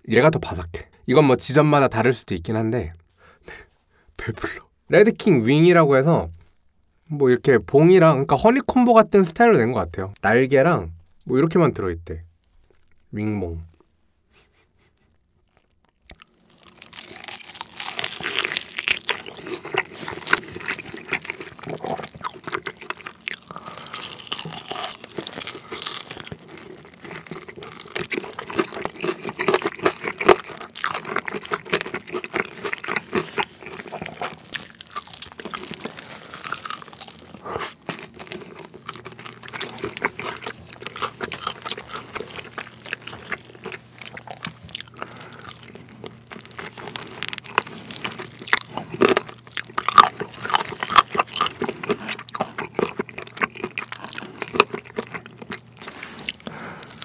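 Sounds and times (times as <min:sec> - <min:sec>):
wet chewing: 0:12.4 - 0:13.1, 0:13.8 - 0:57.0
crisp crunching bites: 0:15.1 - 0:57.0.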